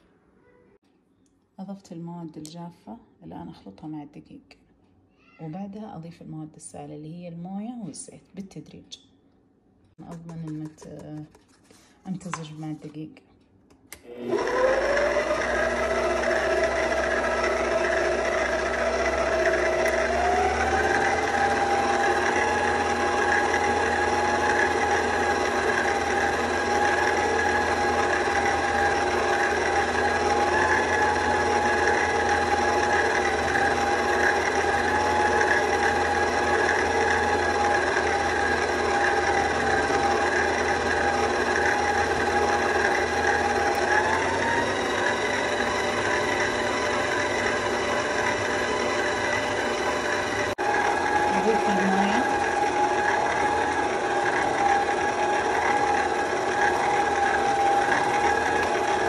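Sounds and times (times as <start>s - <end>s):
stand mixer motor whine: 14.0s - 59.0s.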